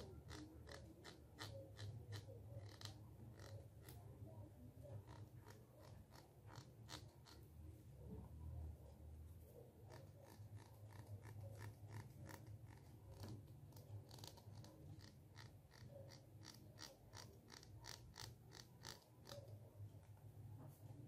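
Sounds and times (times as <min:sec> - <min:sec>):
plastic comb teeth scratching: 0:00.0 - 0:04.1, 0:04.9 - 0:07.4, 0:09.9 - 0:19.6.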